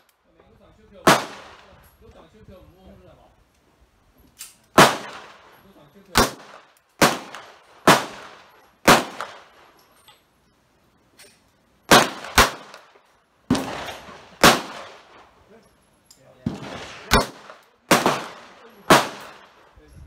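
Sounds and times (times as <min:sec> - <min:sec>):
pistol shots with echo: 0:01.0 - 0:01.7, 0:04.8 - 0:05.5, 0:06.1 - 0:09.6, 0:11.9 - 0:12.9, 0:13.5 - 0:15.1, 0:16.5 - 0:19.6.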